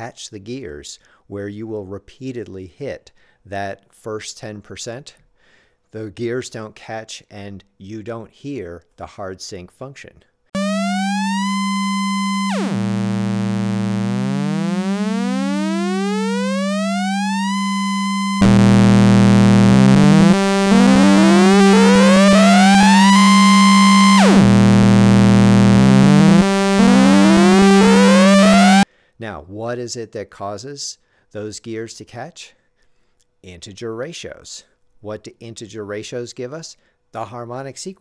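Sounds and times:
low synth drone: 0:10.6 - 0:28.8
synth oscillator sweeping upward: 0:10.6 - 0:28.8.

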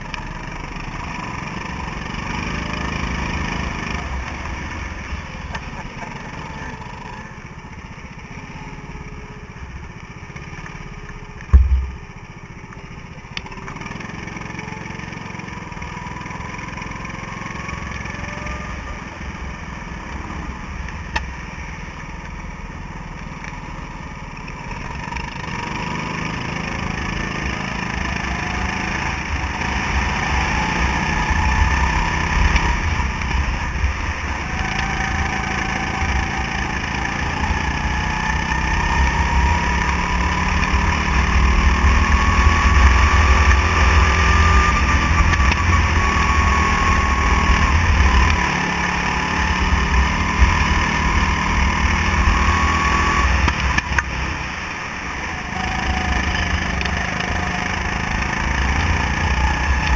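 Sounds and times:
go-kart engine revving: 0:00.0 - 0:59.9
low rumble: 0:11.4 - 0:12.6.

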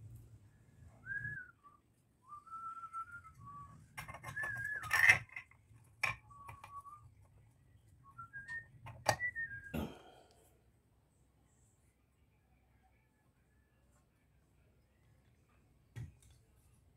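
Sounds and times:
person whistling: 0:01.0 - 0:05.1, 0:08.0 - 0:09.9
clicks and handling noise on metal: 0:03.9 - 0:07.4.

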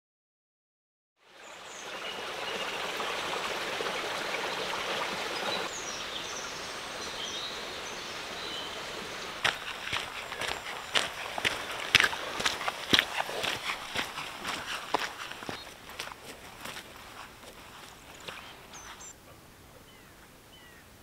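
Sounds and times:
stream running over stones: 0:01.2 - 0:19.1
small birds chirping: 0:04.4 - 0:20.9.

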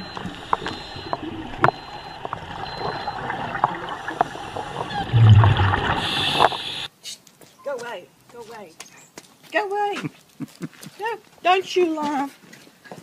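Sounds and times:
faint high beep: 0:00.0 - 0:04.3
bubbles gurgling and hissing: 0:00.0 - 0:06.9
diver breathing through regulator: 0:04.2 - 0:06.9.

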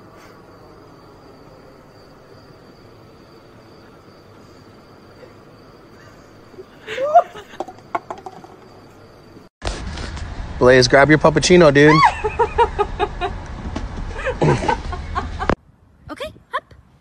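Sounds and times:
thin high steady tone: 0:00.0 - 0:09.5
person laughing: 0:06.0 - 0:07.6, 0:11.9 - 0:13.4, 0:14.2 - 0:15.5.

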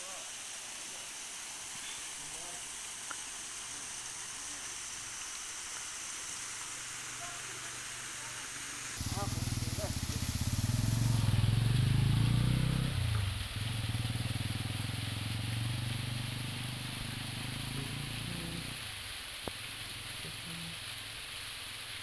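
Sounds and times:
waterfall hiss: 0:00.0 - 0:22.0
scooter engine running: 0:09.0 - 0:15.3.

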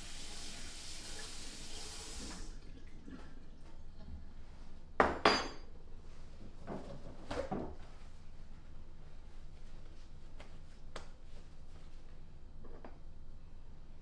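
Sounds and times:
paper towel rustling: 0:06.0 - 0:12.5.

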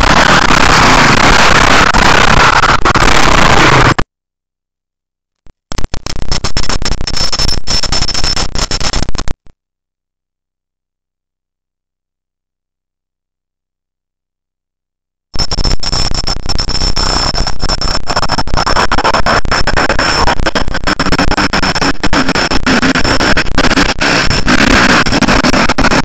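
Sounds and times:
crackling distorted noise: 0:00.0 - 0:04.0, 0:05.4 - 0:09.6, 0:15.4 - 0:26.0.

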